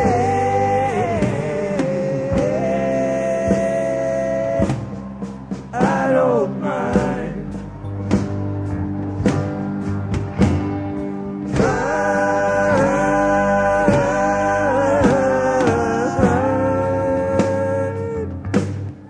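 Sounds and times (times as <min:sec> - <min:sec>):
sustained singing over instruments: 0:00.0 - 0:08.5, 0:11.4 - 0:18.3
drum hits: 0:11.5 - 0:17.9.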